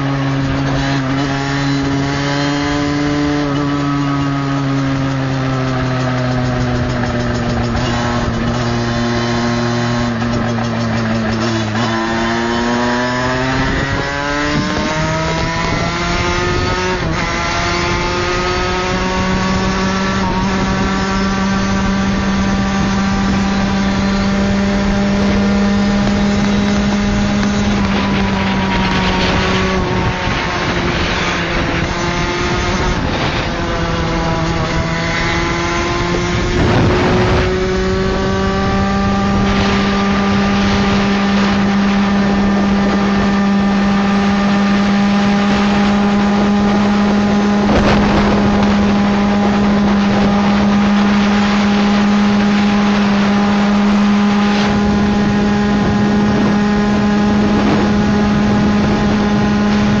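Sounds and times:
two-stroke engine at high revs: 0:00.0 - 1:00.0
wind rushing over microphone: 0:00.0 - 1:00.0.

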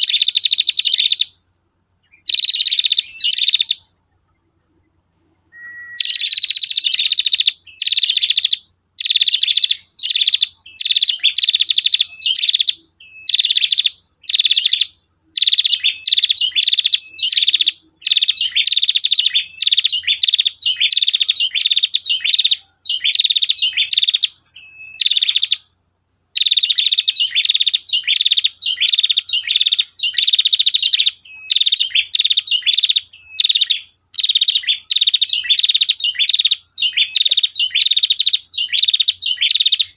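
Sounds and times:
bird buzzy ticking trills: 0:00.0 - 0:39.9.

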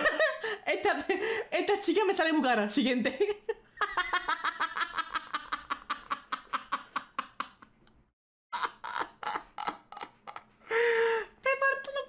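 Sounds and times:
man laughing hard: 0:03.8 - 0:07.7, 0:08.5 - 0:10.9.

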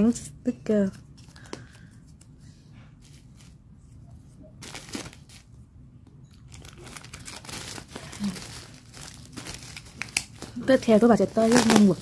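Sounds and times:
plastic packaging crinkling: 0:04.4 - 0:05.6, 0:06.3 - 0:12.0.

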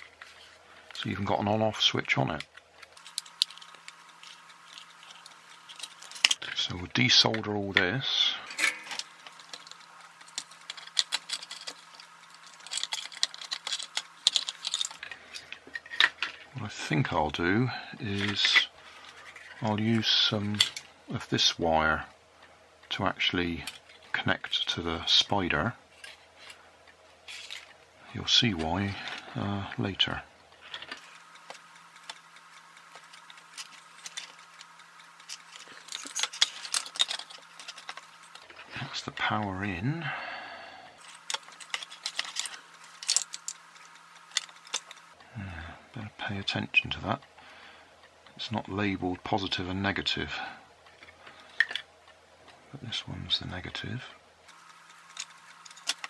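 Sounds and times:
faint steady hum: 0:00.0 - 0:56.0
plastic toy parts clicking and rattling: 0:02.4 - 0:06.6, 0:08.5 - 0:16.5, 0:20.5 - 0:20.9, 0:27.3 - 0:27.8, 0:30.6 - 0:38.6, 0:41.0 - 0:45.2, 0:50.8 - 0:51.9, 0:54.5 - 0:56.0.

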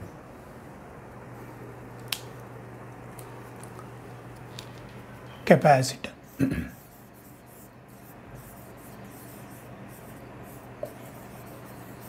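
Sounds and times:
marker pen writing on whiteboard: 0:06.8 - 0:12.0.

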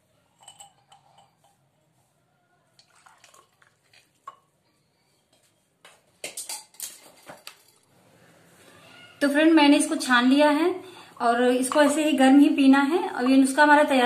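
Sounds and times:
metal clinking against glass: 0:00.4 - 0:01.4.

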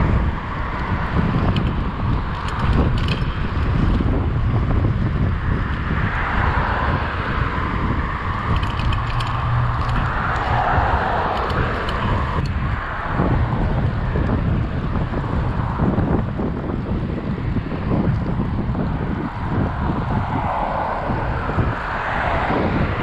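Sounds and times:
street traffic passing: 0:00.0 - 0:23.0
wind buffeting microphone: 0:00.0 - 0:23.0
light clicks from bicycle: 0:00.7 - 0:04.2, 0:08.5 - 0:12.7.

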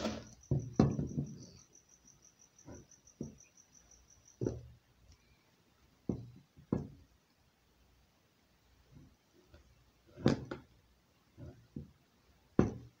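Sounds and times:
cricket chirping: 0:00.0 - 0:06.4.

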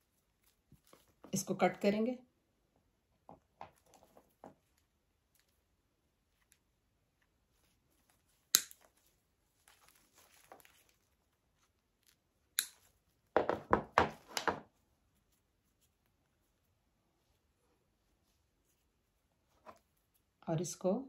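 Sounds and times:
plastic leaves rustling: 0:07.5 - 0:12.2.

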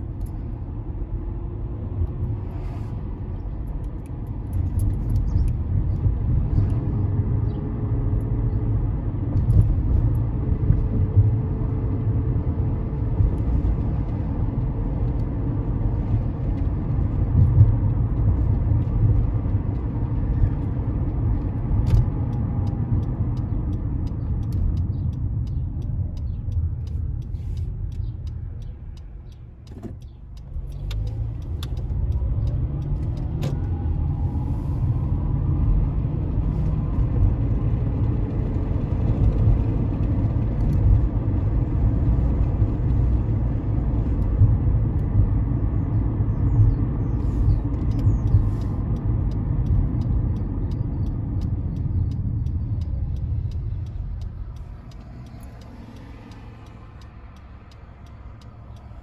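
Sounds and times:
car cabin road rumble: 0:00.0 - 0:59.0
faint ticks: 0:47.2 - 0:59.0.

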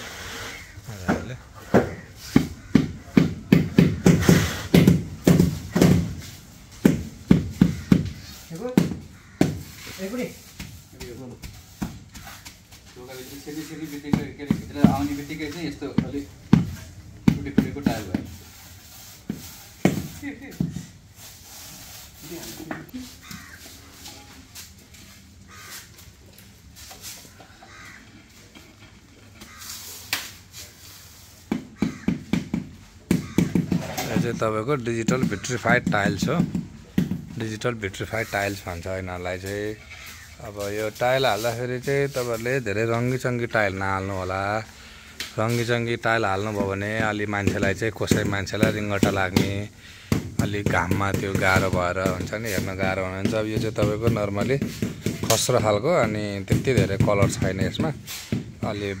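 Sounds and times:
tile scraping and knocking: 0:31.5 - 0:34.4.

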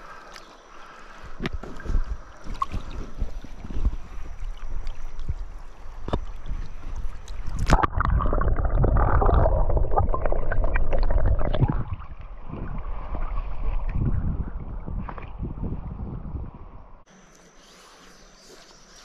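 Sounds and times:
river water gurgling underwater: 0:01.6 - 0:15.8.

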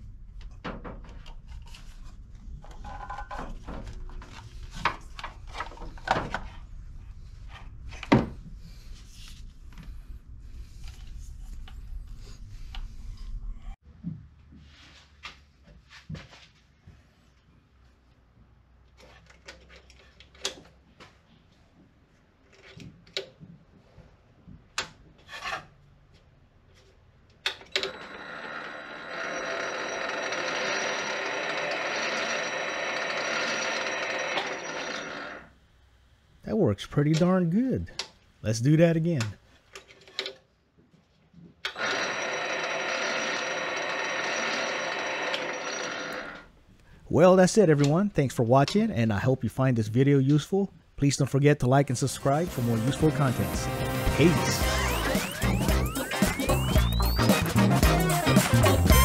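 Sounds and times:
lathe motor whining: 0:27.8 - 0:35.5, 0:41.7 - 0:46.5.

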